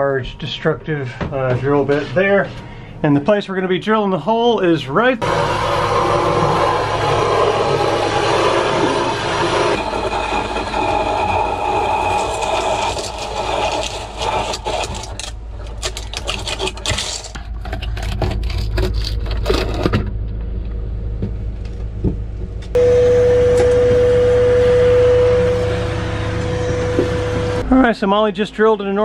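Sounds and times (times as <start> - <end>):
electric drill motor: 5.2 - 15.3
hole saw scraping through wood: 7.0 - 20.0.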